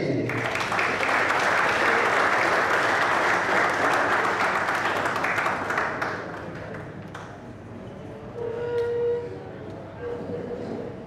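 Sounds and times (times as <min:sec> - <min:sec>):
audience applauding: 0:00.3 - 0:07.5.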